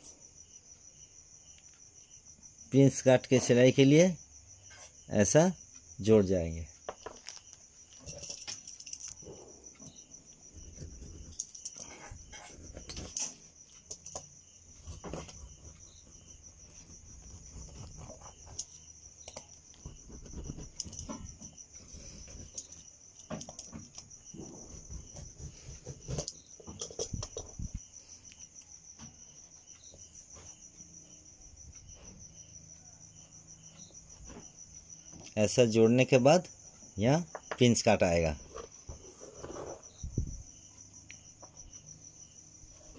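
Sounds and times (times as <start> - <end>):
cricket trilling: 0.0 - 42.9
tracing wheel on cloth: 6.9 - 28.4, 38.4 - 40.1.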